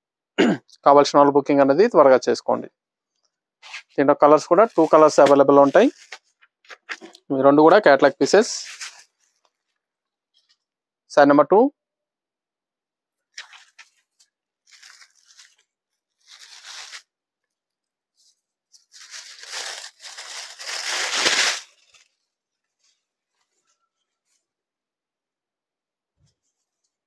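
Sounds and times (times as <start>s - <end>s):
fabric rustling and swishing: 3.6s - 6.2s, 8.4s - 9.4s.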